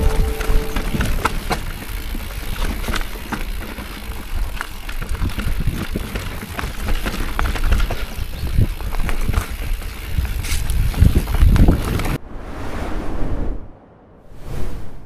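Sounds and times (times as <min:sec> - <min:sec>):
bike rattles and clicks: 0:00.0 - 0:12.2
bike tyre rumble: 0:00.0 - 0:12.2
wind buffeting microphone: 0:07.6 - 0:12.2.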